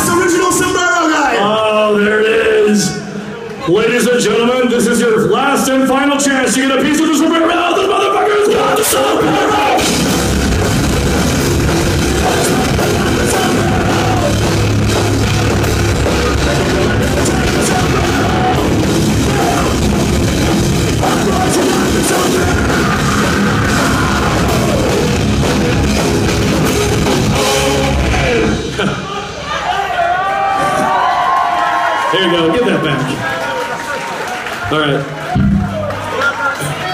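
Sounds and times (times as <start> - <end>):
live heavy rock band: 7.1 - 31.2.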